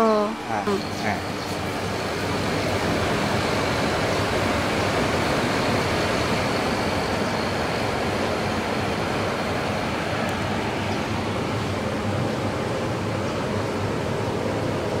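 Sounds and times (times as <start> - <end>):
faint high whine: 0.0 - 11.7
water chiller fan and compressor hum: 0.0 - 15.0.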